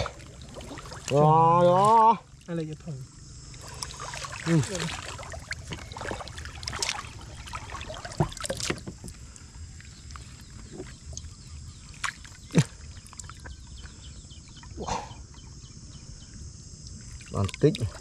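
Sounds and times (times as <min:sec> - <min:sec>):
short sharp splashes: 0:00.0 - 0:01.2, 0:03.5 - 0:08.8
hands splashing shallow water: 0:03.6 - 0:09.1.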